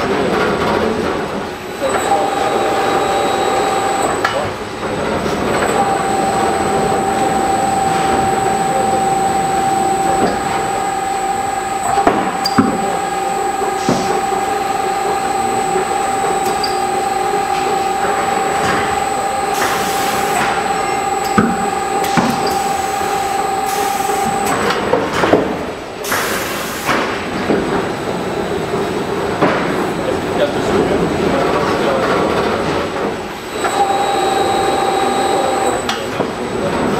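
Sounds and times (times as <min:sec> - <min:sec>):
machine motor whine: 0:01.6 - 0:25.1, 0:33.3 - 0:36.9
machine clunks: 0:03.9 - 0:27.8
pneumatic hisses: 0:19.6 - 0:20.6, 0:26.0 - 0:27.0.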